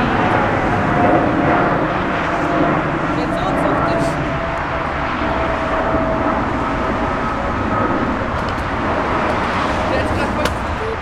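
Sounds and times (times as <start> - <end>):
jet engines running: 0.0 - 11.0.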